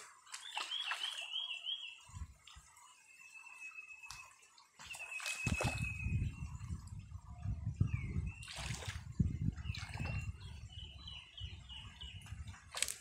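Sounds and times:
net sloshing through water: 0:00.0 - 0:01.4, 0:04.8 - 0:06.0, 0:08.4 - 0:09.1
bird chirping: 0:00.4 - 0:02.2.

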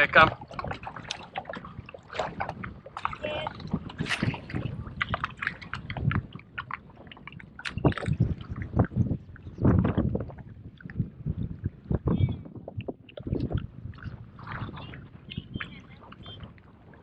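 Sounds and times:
water splashing and sloshing: 0:00.0 - 0:17.0.

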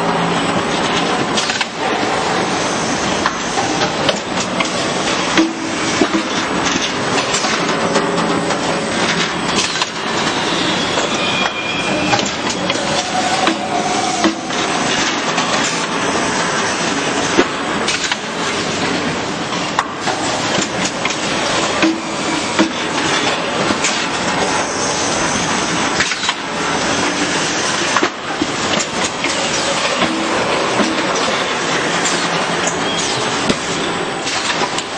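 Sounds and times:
machine clatter: 0:00.0 - 0:34.9
brief squeals: 0:10.3 - 0:14.3.

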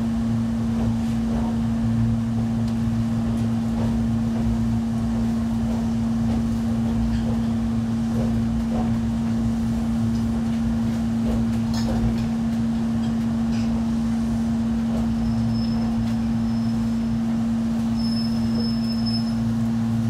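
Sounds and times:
train equipment hum: 0:00.0 - 0:20.0
high brake squeal: 0:17.9 - 0:19.5.

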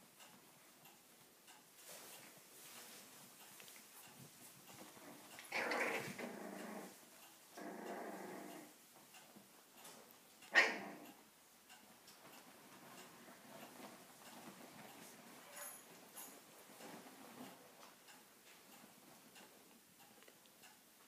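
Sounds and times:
puppies play growling: 0:04.7 - 0:08.8, 0:10.5 - 0:11.2.

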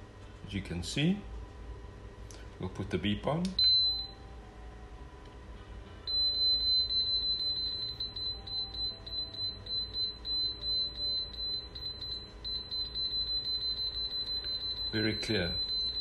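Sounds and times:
high-pitched pulsing beep: 0:06.1 - 0:16.0.

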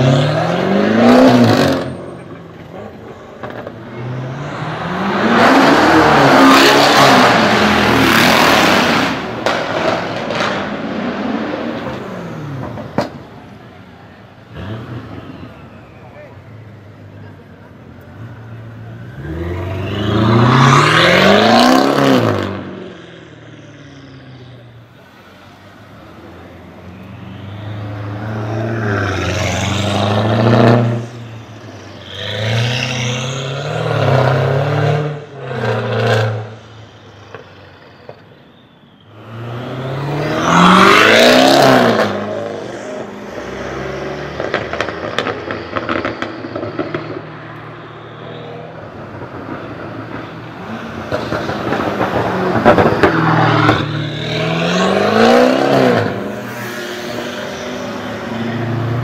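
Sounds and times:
car engine revving hard: 0:39.3 - 0:47.1, 0:50.8 - 0:59.0.

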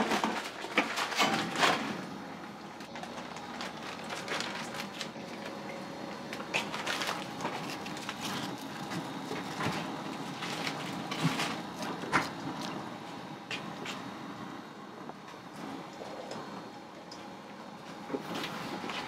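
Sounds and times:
background hum: 0:00.0 - 0:19.0.

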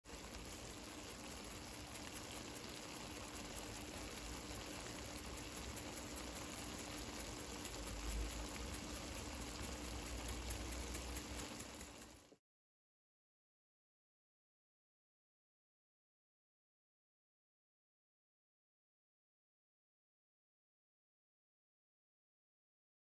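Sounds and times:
faint steady hum: 0:00.1 - 0:12.4
pasta sizzling in a skillet: 0:00.1 - 0:12.4.

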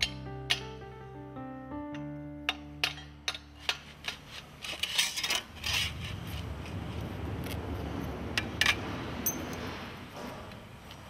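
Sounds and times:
metal plate clinking and scraping: 0:02.8 - 0:06.4
low steady rumble: 0:04.6 - 0:10.2.

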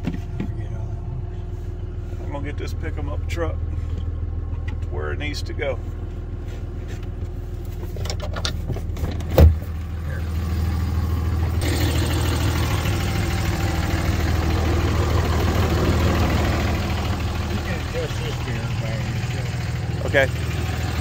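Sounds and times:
truck engine idling: 0:00.0 - 0:21.0
truck door slamming: 0:09.0 - 0:09.8.

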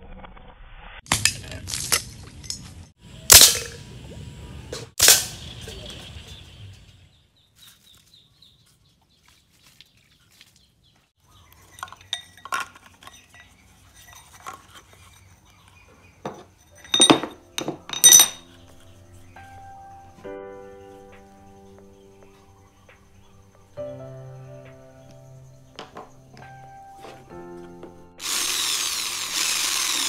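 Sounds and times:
sharp knocks and clinks: 0:11.5 - 0:15.2, 0:16.1 - 0:18.6
background music: 0:17.0 - 0:28.2.

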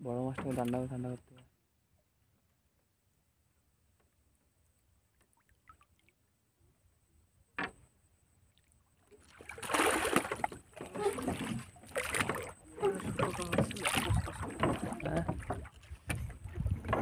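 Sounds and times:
fish splashing and thrashing: 0:08.9 - 0:17.0.

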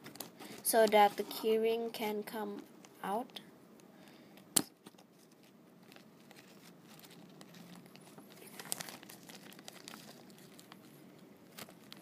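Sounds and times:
plastic crinkling: 0:00.0 - 0:01.6, 0:04.8 - 0:12.0.

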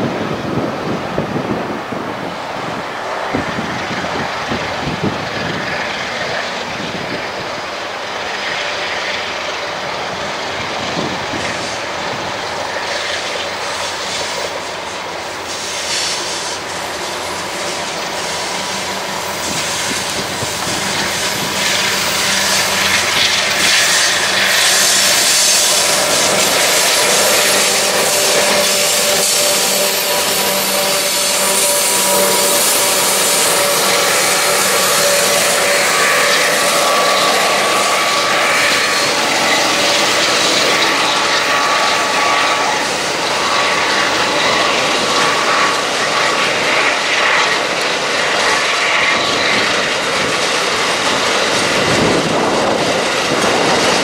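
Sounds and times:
diesel locomotive engine running: 0:00.0 - 0:54.0
train wheels rolling on rails: 0:00.0 - 0:54.0
steady squealing tone: 0:15.4 - 0:54.0.

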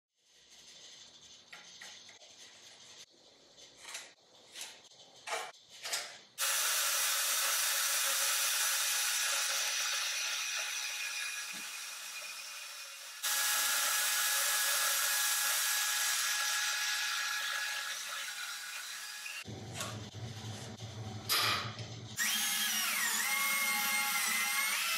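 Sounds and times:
scribe scraping on steel: 0:00.2 - 0:06.3
band saw cutting steel: 0:06.4 - 0:20.0, 0:22.2 - 0:24.9.

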